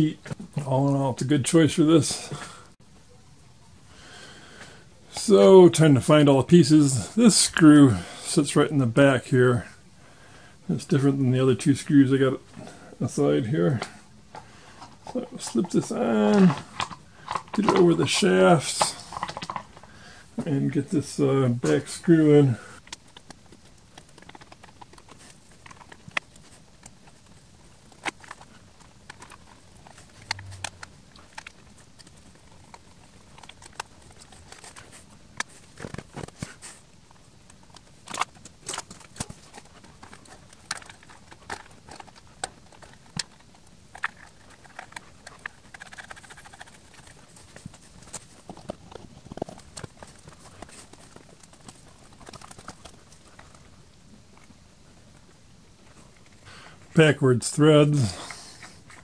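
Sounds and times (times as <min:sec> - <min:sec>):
plastic parts clicking and tapping: 0:13.8 - 0:19.9, 0:37.4 - 0:53.6.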